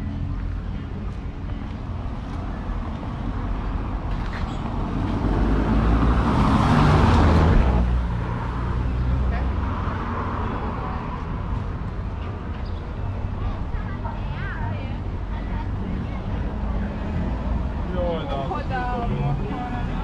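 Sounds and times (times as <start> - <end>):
car driving past on cobblestones: 4.2 - 8.8.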